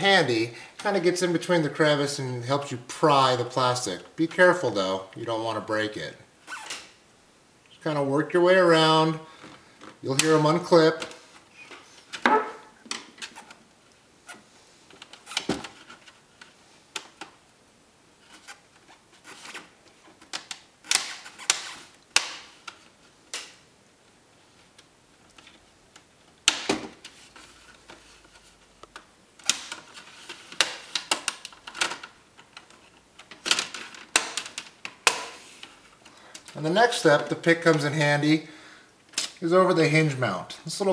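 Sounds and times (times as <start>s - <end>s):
plastic clips snapping: 20.2s - 23.6s, 28.8s - 36.6s
plastic scraping and handling: 26.8s - 38.0s.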